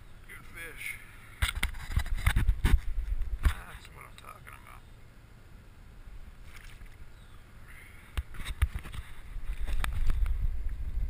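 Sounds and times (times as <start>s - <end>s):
water splashing: 6.3s - 7.2s.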